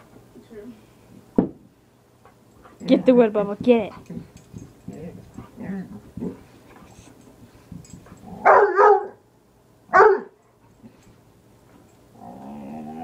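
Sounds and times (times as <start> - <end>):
dog barking: 8.4 - 9.2, 9.9 - 10.4.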